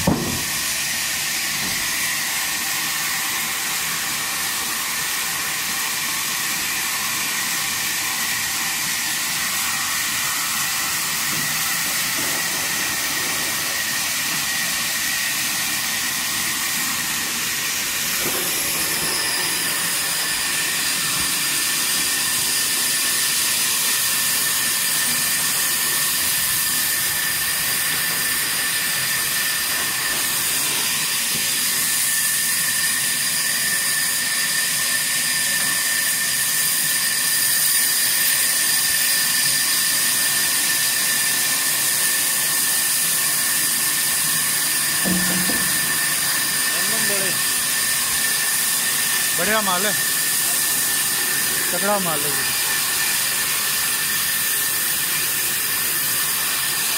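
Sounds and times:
band saw hissing and whining: 0:00.0 - 0:56.9
higher whine: 0:17.0 - 0:22.1, 0:45.0 - 0:48.1.

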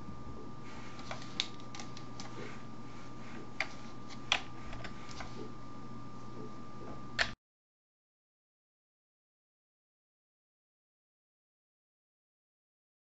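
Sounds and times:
faint electrical hum: 0:00.0 - 0:07.4
thin steady whine: 0:00.0 - 0:07.4.

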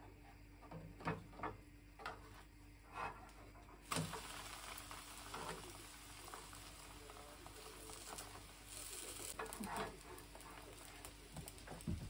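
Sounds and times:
pancake sizzling: 0:03.8 - 0:12.0
spatula scraping pan: 0:07.9 - 0:10.9.

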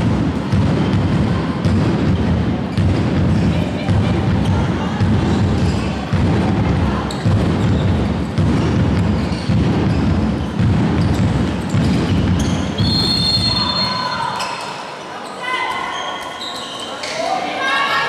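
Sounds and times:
heavy thumps: 0:00.0 - 0:13.5.

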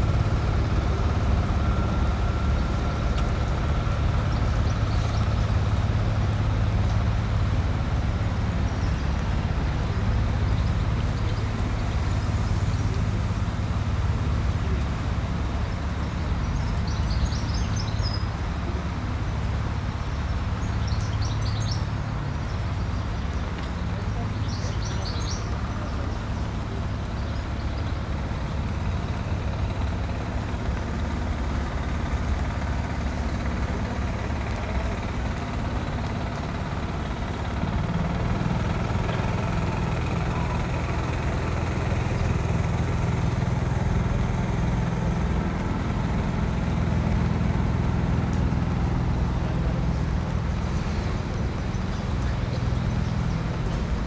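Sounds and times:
heavy vehicle engine running: 0:00.0 - 0:54.0
street traffic: 0:00.0 - 0:54.0.

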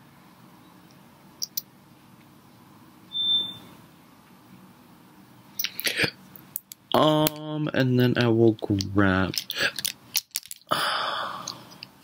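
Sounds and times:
high electronic beep: 0:03.1 - 0:03.7.

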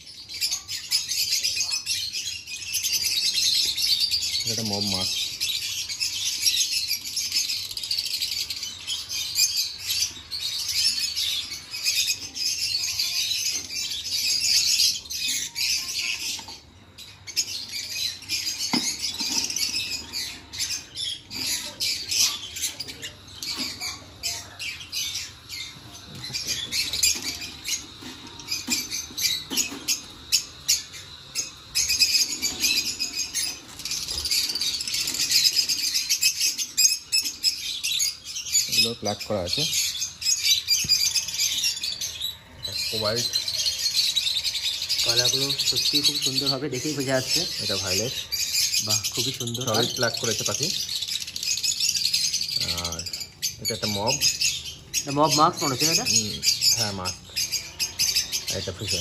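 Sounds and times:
lovebirds chattering and squawking: 0:00.0 - 0:59.0.

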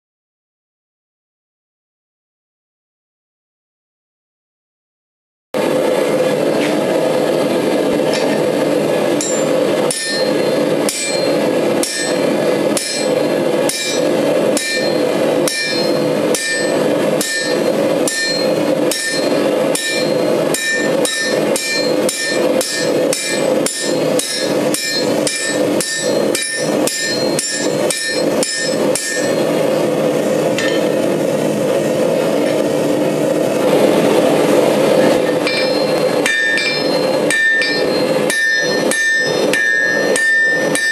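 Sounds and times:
steady rushing noise: 0:05.6 - 0:40.9
hammer striking steel on anvil: 0:08.1 - 0:08.5, 0:09.1 - 0:29.8, 0:30.5 - 0:31.1, 0:35.0 - 0:40.9.

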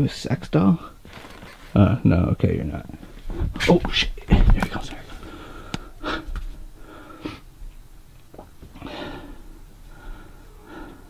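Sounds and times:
person breathing close: 0:05.1 - 0:07.5, 0:08.8 - 0:11.0.

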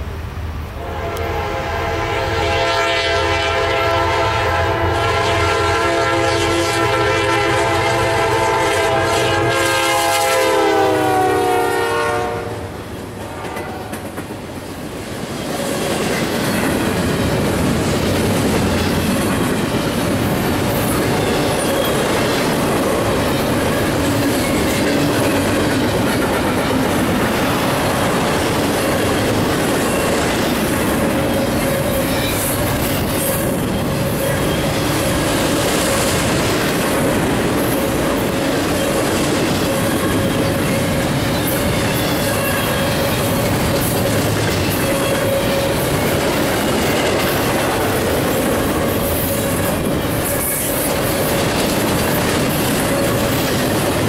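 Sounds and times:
train cars rumbling and rattling: 0:00.0 - 0:54.0
locomotive horn: 0:00.8 - 0:14.0.

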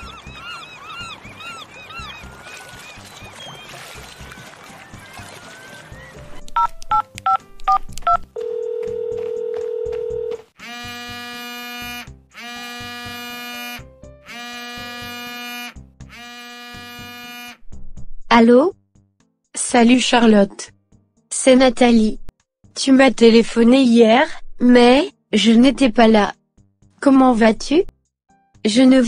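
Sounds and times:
keypad dialing beeps: 0:06.6 - 0:10.3
mobile phone ringtone: 0:06.9 - 0:10.4.

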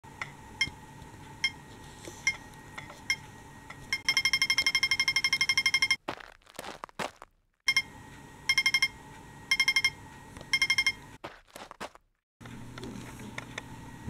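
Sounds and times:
toy traffic light beeping: 0:03.9 - 0:06.0, 0:08.5 - 0:11.0.

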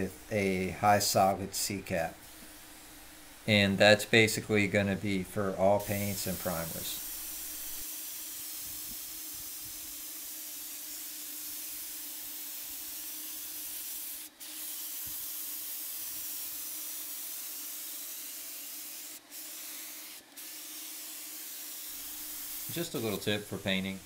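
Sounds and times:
paint sprayer hissing: 0:05.1 - 0:24.0.

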